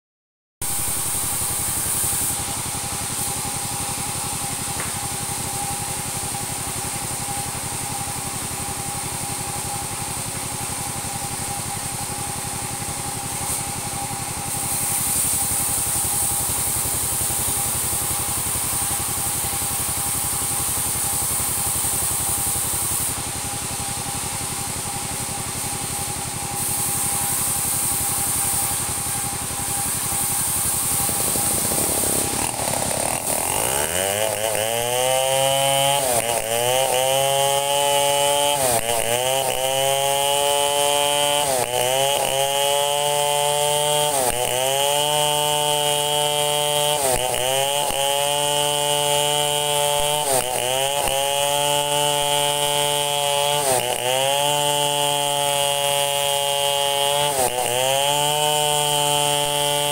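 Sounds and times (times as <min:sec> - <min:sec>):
high hiss: 0:00.6 - 0:02.5, 0:26.6 - 0:32.7
chainsaw idling: 0:00.6 - 0:59.9.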